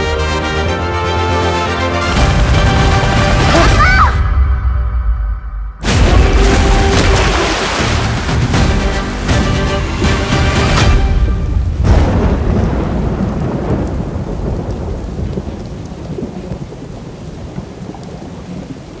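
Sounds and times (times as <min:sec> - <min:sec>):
music: 0:00.0 - 0:12.5
steady rain: 0:01.1 - 0:04.0, 0:05.8 - 0:19.0
thunderclap: 0:04.4 - 0:19.0
rolling thunder rumble: 0:11.2 - 0:19.0.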